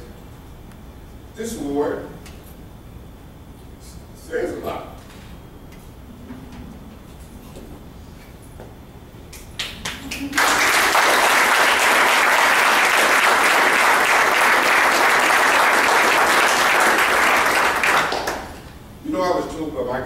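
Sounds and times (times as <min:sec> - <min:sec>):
audience applauding: 0:09.6 - 0:18.6.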